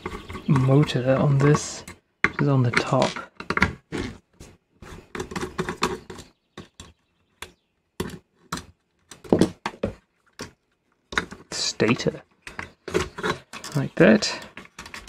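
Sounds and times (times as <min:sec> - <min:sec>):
small metal parts clicking: 0:12.4 - 0:15.0.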